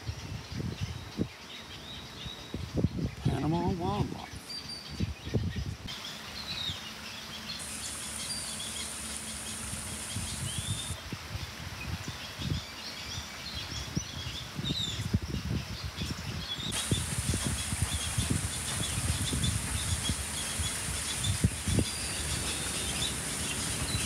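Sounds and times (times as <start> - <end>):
small birds chirping: 0.0 - 11.0, 11.9 - 24.0
high steady hiss: 5.7 - 24.0
low rumbling bumps: 16.7 - 24.0.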